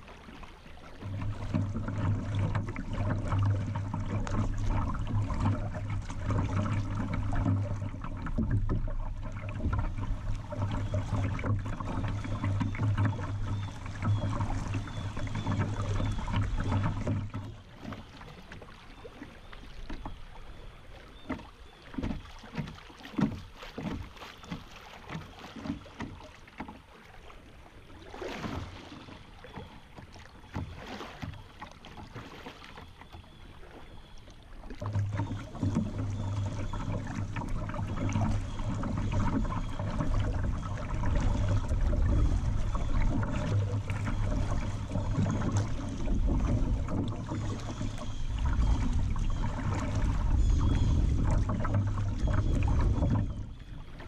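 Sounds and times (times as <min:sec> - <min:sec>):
water splashing against kayak: 0:00.0 - 0:54.0
low rumble: 0:35.4 - 0:54.0.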